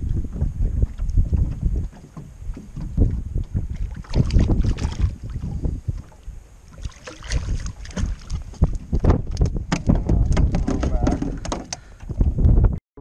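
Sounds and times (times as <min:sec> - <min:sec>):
water splashes and knocks: 0:00.0 - 0:12.3
wind buffeting microphone: 0:00.0 - 0:12.8.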